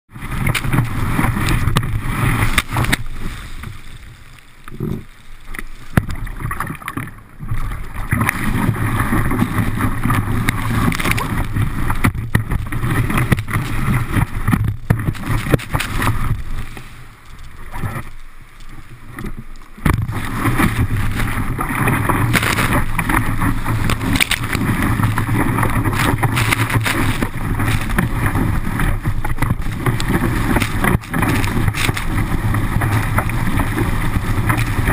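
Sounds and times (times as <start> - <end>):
water rushing against a board: 0.1 - 34.9
wind buffeting microphone: 19.8 - 34.9.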